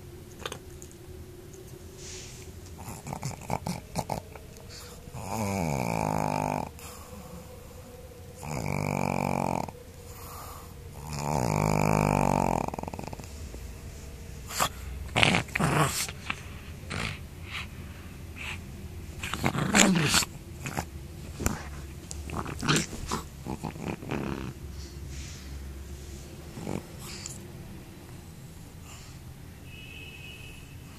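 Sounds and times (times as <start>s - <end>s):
dog growling: 2.6s - 25.3s, 26.1s - 29.0s
dog huffs and grunts: 14.5s - 25.0s.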